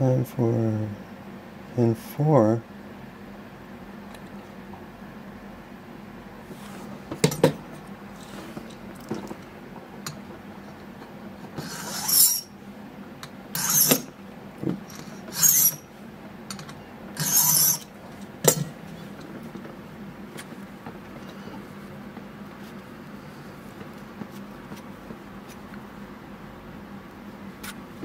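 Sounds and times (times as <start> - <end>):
file scraping brass: 11.6 - 12.5, 13.6 - 14.1, 15.0 - 15.8, 17.2 - 17.9.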